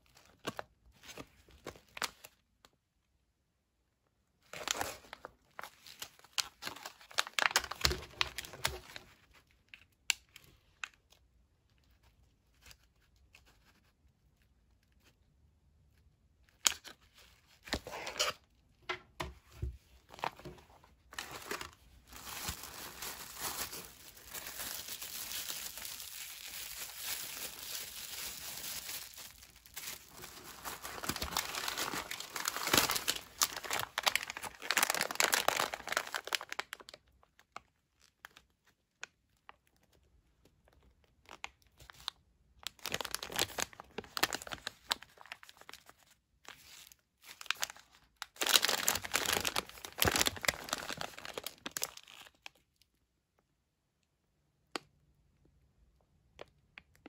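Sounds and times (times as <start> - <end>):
plastic packaging crinkling: 4.4 - 11.2, 19.5 - 38.7, 40.7 - 52.6.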